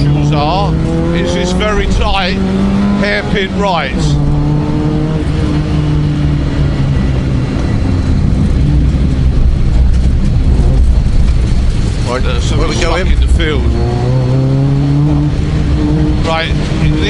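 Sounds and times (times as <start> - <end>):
rally car engine from inside: 0.0 - 17.0
road and tyre noise: 0.0 - 17.0.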